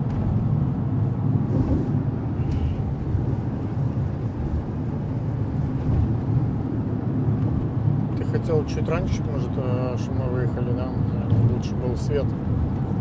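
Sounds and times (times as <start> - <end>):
car cabin road and engine noise: 0.0 - 13.0.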